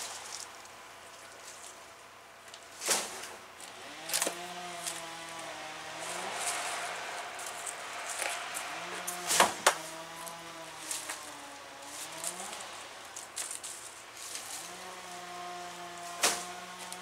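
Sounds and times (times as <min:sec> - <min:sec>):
distant engine running: 0:03.6 - 0:17.0.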